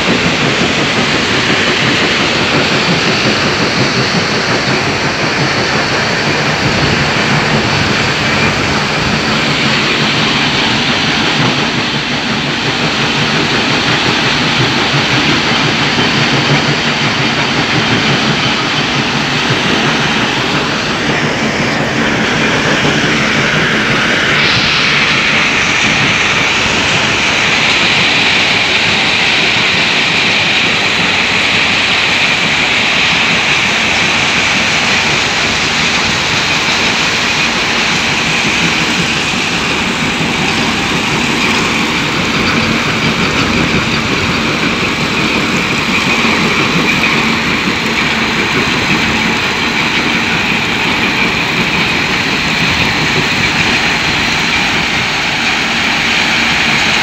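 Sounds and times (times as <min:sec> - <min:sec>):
crushing machinery noise: 0:00.0 - 0:57.0.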